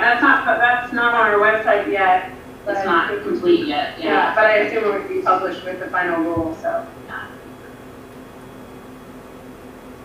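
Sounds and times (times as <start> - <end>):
low hum with faint hiss: 0.0 - 10.0
person speaking: 2.7 - 7.4.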